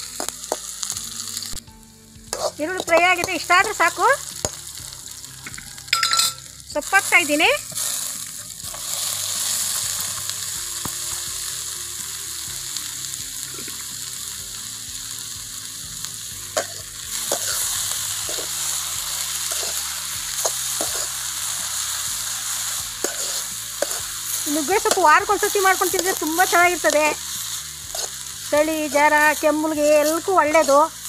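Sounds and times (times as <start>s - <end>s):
food sizzling in hot oil: 0.0s - 31.0s
metal spatula scraping and clinking: 2.3s - 4.6s, 5.4s - 6.5s, 16.6s - 21.2s, 23.0s - 25.2s, 27.9s - 28.2s.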